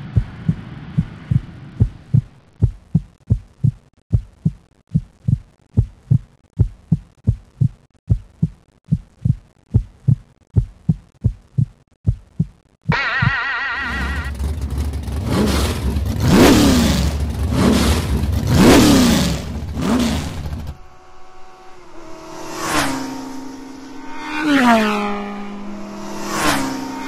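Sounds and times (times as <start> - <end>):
low thumps: 0.0 - 13.4
hum: 0.0 - 27.0.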